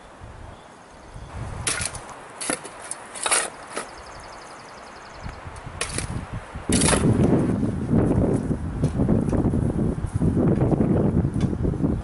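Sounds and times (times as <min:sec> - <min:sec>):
metal shovel scraping ash and dirt: 0:01.6 - 0:04.0, 0:05.8 - 0:07.4.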